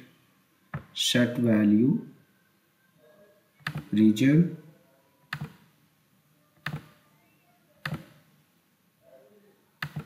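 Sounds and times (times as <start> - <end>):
computer mouse clicking: 3.6 - 3.9, 5.3 - 5.6, 6.6 - 7.0, 7.8 - 8.2, 9.8 - 10.0.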